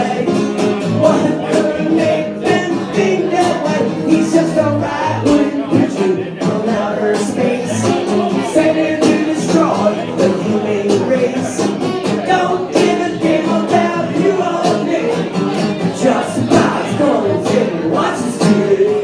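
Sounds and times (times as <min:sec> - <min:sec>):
man singing: 0:00.0 - 0:19.0
strummed acoustic guitar: 0:00.0 - 0:19.0.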